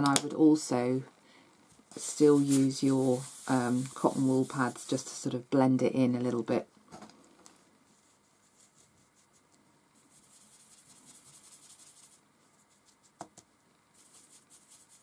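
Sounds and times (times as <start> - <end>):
paintbrush scratching on paper: 1.9 - 5.2, 7.9 - 13.2, 13.9 - 15.0.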